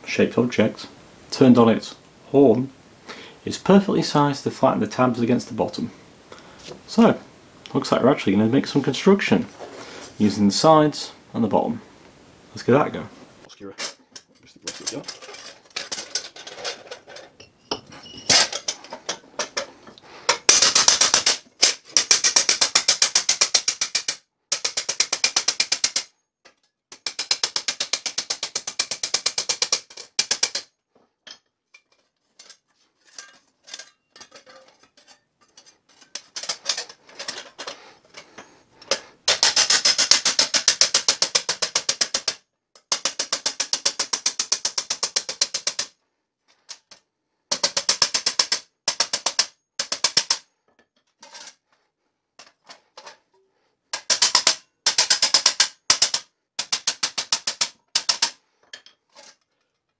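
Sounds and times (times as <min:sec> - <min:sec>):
hammer tapping on thin steel sheet: 0:20.3 - 0:26.1, 0:26.9 - 0:30.7, 0:39.3 - 0:45.9, 0:47.5 - 0:50.4, 0:54.0 - 0:58.4.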